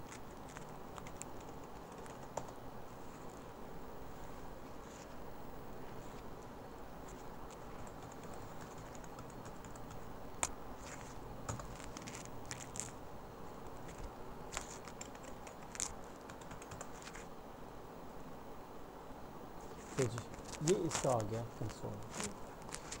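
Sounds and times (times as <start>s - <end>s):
faint steady hiss: 0.0s - 23.0s
keyboard typing clicks: 0.9s - 2.6s, 7.8s - 10.0s, 14.9s - 17.1s.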